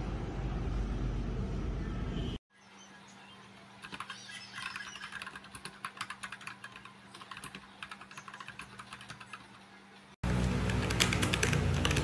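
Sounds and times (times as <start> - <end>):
fast typing on mechanical keyboard: 3.8 - 9.5, 10.6 - 12.0.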